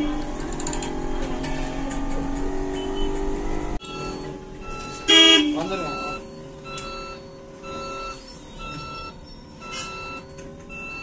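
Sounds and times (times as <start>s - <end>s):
electronic warning beeps: 2.6s - 11.0s.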